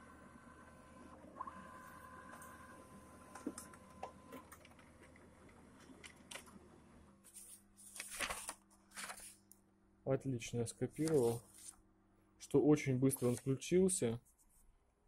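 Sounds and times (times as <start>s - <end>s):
printer humming with clicks: 0.0s - 6.8s
paper rustling: 7.2s - 9.4s, 11.0s - 11.8s, 13.1s - 13.6s.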